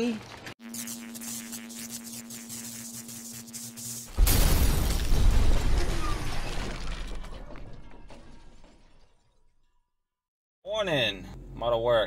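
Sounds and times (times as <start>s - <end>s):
electric buzzing hum: 0.6s - 5.0s
glass breaking: 4.1s - 10.0s.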